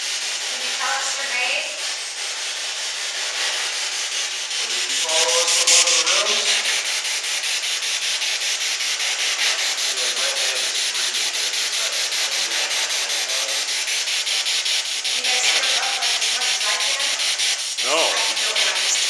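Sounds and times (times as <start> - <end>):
chopped radio static hiss: 0.0 - 2.2, 4.3 - 7.1, 9.2 - 19.0.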